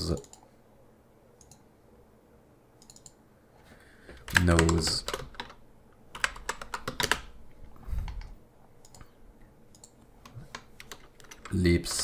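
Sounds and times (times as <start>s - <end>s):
typing on computer keyboard: 4.2s - 7.4s, 9.7s - 12.0s.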